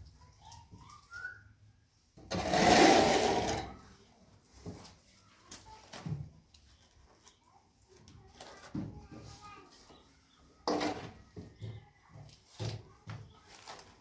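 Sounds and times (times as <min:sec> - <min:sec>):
trowel scraping plaster on wall: 0:02.3 - 0:03.8.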